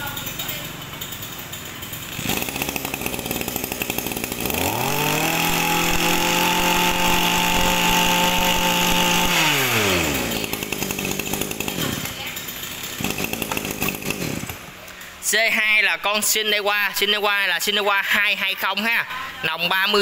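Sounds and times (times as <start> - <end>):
brush cutter engine revving: 0.0 - 15.1.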